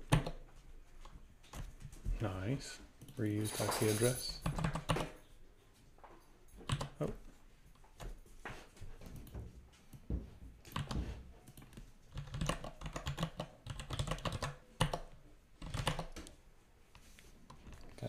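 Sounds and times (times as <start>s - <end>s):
typing on computer keyboard: 0.0s - 0.4s, 4.4s - 5.2s, 6.6s - 7.2s, 10.7s - 16.4s.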